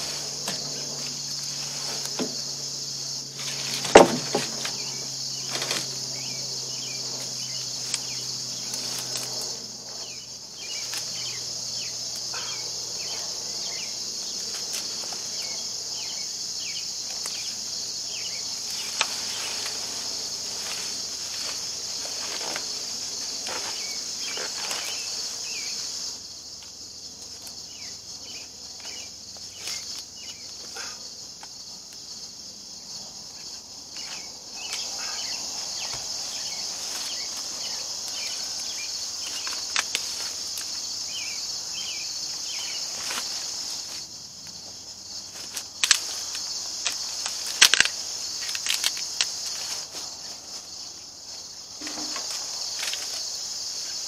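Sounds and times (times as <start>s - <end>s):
insects chorus: 0.0s - 54.0s
wooden rails knocking and scraping: 3.4s - 4.8s, 51.8s - 52.5s.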